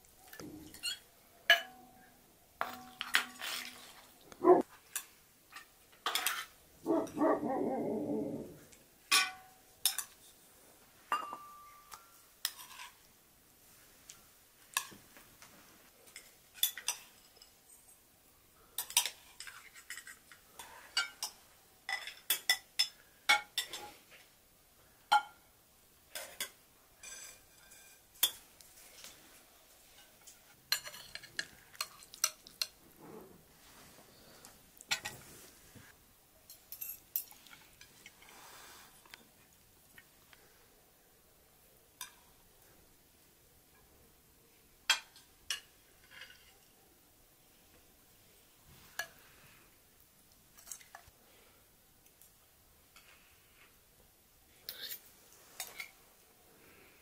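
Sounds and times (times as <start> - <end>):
cutlery clinking against dishes: 0.3 - 2.0, 2.6 - 3.9, 4.9 - 6.6, 9.1 - 10.3, 11.1 - 13.0, 16.1 - 17.6, 18.8 - 24.0, 30.0 - 32.8, 44.9 - 46.6.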